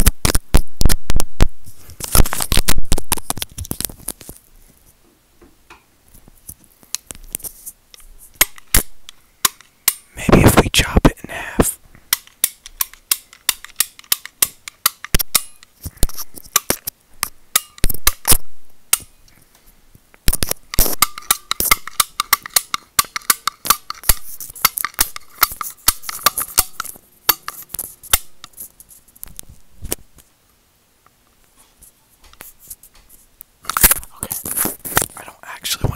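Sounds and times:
pipe cutter clicking and snapping: 8.4 - 10.1, 12.1 - 15.7, 20.4 - 28.3.

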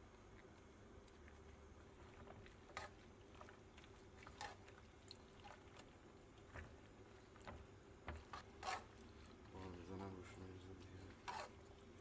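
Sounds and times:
spatula stirring creamy pasta: 0.0 - 12.0
utensil scraping against pot: 2.6 - 3.1, 4.2 - 4.7, 8.2 - 9.4, 10.9 - 11.8.

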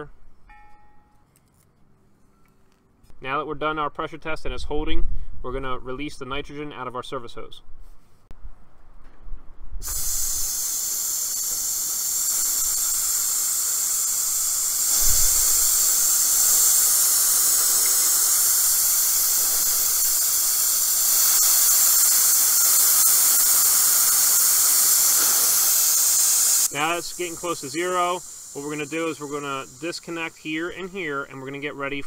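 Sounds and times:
gas hissing from hose: 9.8 - 32.0.

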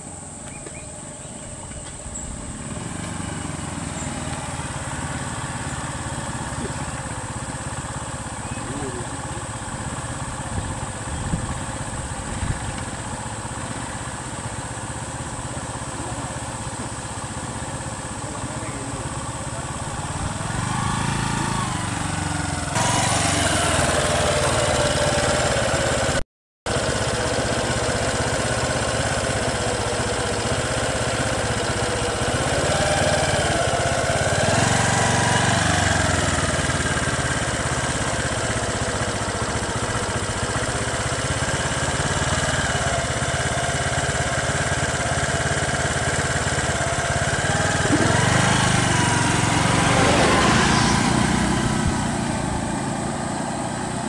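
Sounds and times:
vehicle engine idling: 0.0 - 54.0.

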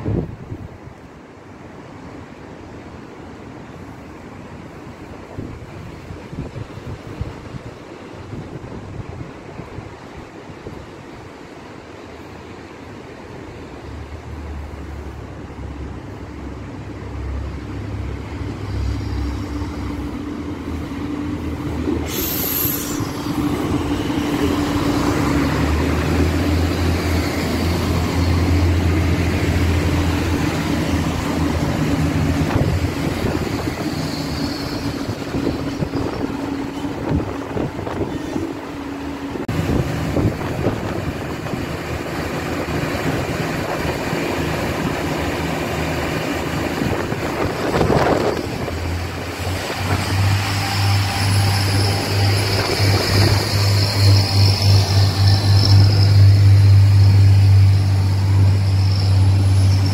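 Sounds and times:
diesel train engine drone: 0.0 - 59.9
brief hiss: 21.9 - 23.4.

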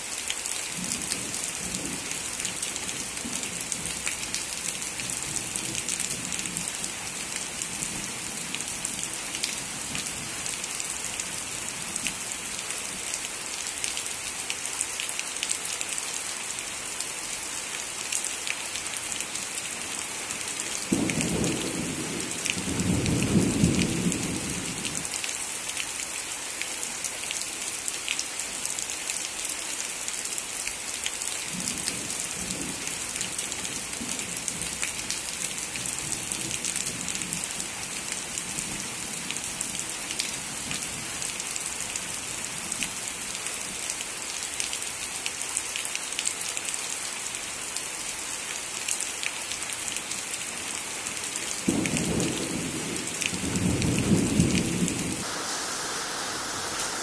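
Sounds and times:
heavy rain on a tin roof: 0.0 - 57.0
thunder rumbling: 51.7 - 57.0.

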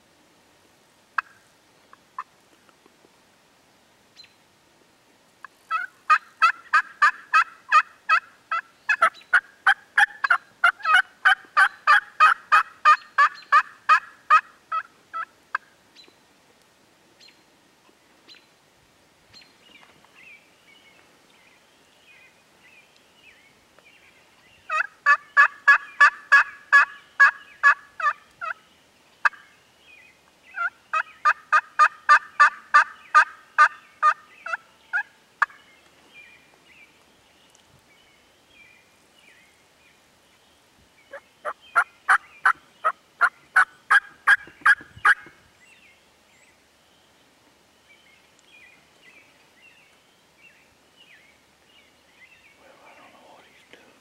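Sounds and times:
wild turkey yelping: 5.7 - 15.7, 24.7 - 28.6, 30.5 - 35.6, 41.1 - 45.3
faint songbird chirps: 17.2 - 18.6, 19.3 - 31.3, 32.3 - 54.0.

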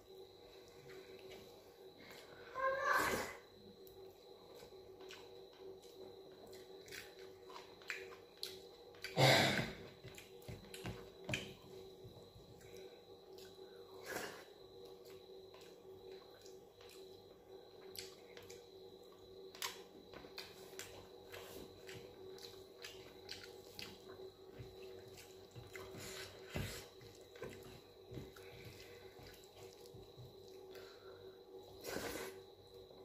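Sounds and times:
faint steady hum: 0.0 - 33.0
chewing: 4.5 - 9.2, 17.8 - 18.7, 19.5 - 30.7.

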